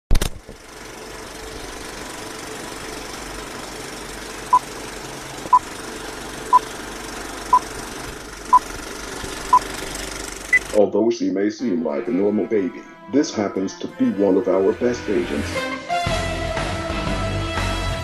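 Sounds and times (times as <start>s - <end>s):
projector running noise: 0.2s - 10.8s.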